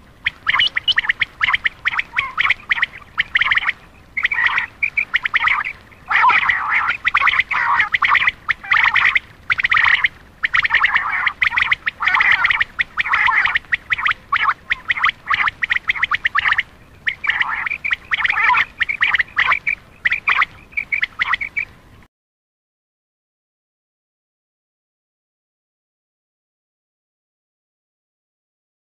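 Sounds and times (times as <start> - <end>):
quail calling: 0.0 - 21.8.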